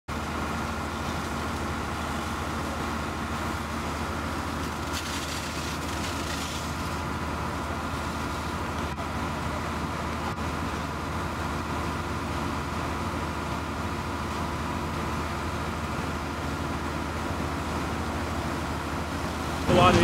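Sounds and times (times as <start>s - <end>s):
fire engine pump running: 0.1s - 20.0s.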